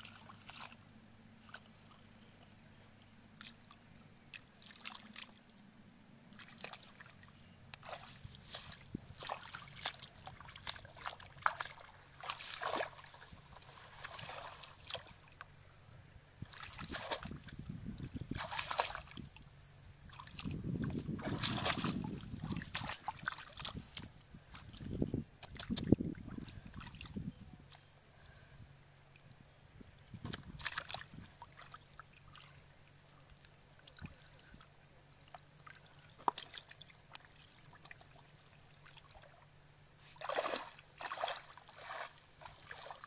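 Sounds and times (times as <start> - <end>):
hands splashing in muddy water: 0.0 - 0.8, 6.4 - 15.2, 16.4 - 19.4, 20.1 - 27.1, 30.2 - 31.8, 40.2 - 43.0
sharp splash: 7.8 - 15.1, 16.5 - 17.3, 18.3 - 19.2, 21.2 - 23.8, 30.6 - 31.7, 40.2 - 43.0.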